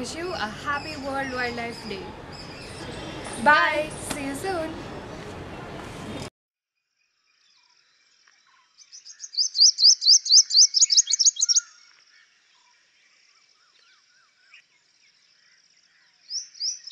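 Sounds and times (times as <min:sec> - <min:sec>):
bird singing sharp high notes: 0:08.9 - 0:11.8.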